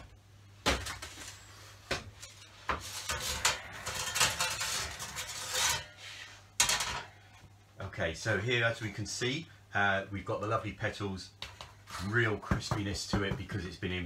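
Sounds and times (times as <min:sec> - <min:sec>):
metal scraping and rattling: 0:02.2 - 0:07.2.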